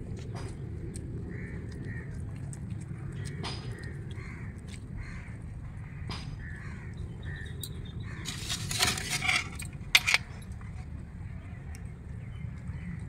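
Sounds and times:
crows cawing: 3.4 - 7.5
sharp clatter: 8.2 - 10.7.

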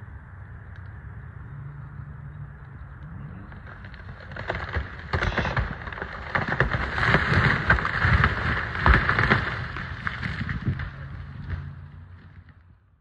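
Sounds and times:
burning wood crackling and popping: 1.8 - 13.0
wood cracking and tree falling: 3.0 - 12.8.

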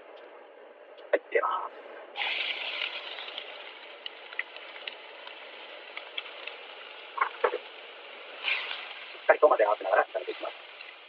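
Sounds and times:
onion sizzling in hot oil: 2.2 - 11.0
pops and crackles: 2.2 - 11.0.

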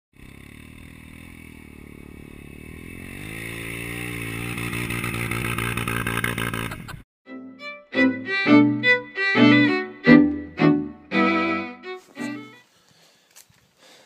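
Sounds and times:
motorcycle engine running: 0.2 - 7.0.

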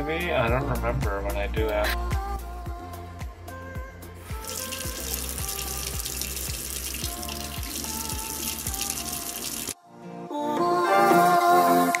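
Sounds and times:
background music with steady beat: 0.0 - 12.0
faucet water pouring into basin: 4.3 - 9.8.

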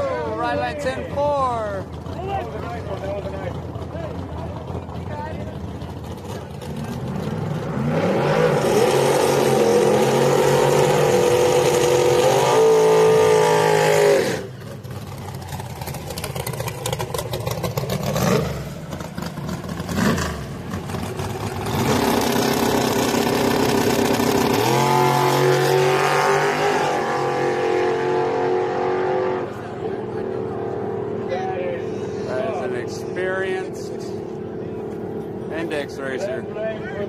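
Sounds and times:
truck engine revving hard: 6.3 - 14.6, 16.9 - 34.3.

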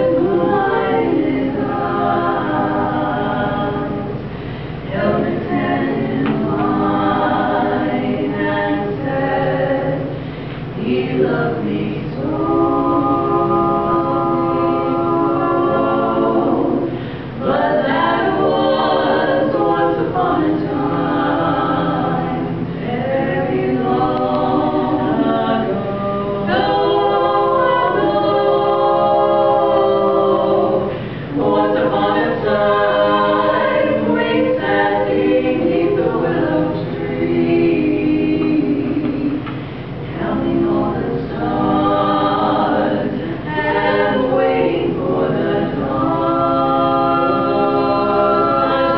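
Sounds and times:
women singing a cappella harmony: 0.0 - 48.9
singers breathing: 4.2 - 4.9, 10.1 - 10.7, 16.9 - 17.4, 30.8 - 31.4.

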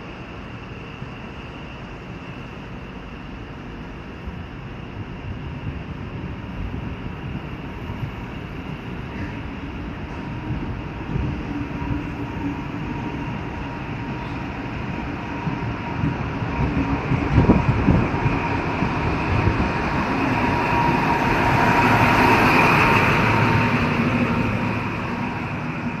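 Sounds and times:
train wheels rumbling on rails: 0.0 - 26.0.

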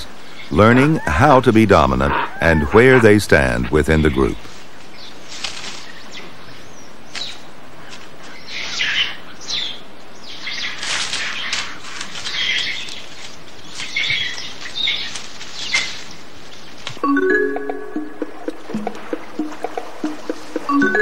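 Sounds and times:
monkeys calling: 0.5 - 4.4.

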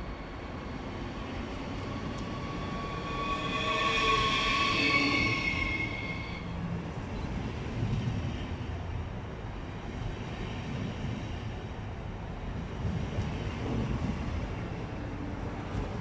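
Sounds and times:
electric train whine: 0.0 - 11.6
wheels rumbling on rails: 0.0 - 16.0.

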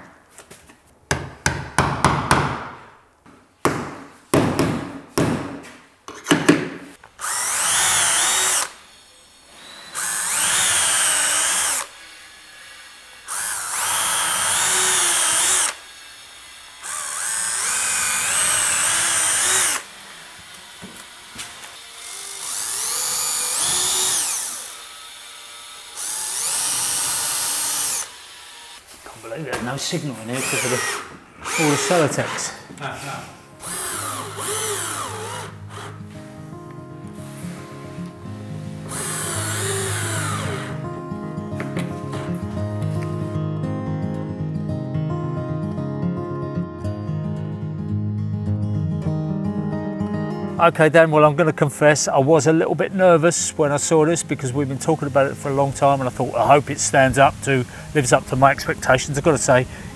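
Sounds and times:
hammer striking a chisel: 3.6 - 6.8
cordless drill driving screws: 7.2 - 28.8, 30.3 - 32.6, 33.6 - 36.0, 38.8 - 40.9.

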